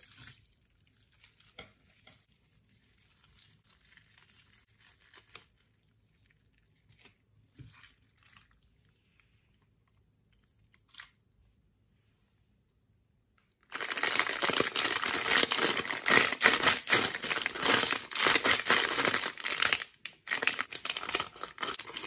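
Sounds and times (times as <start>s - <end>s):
hands squishing water beads: 13.6s - 22.0s.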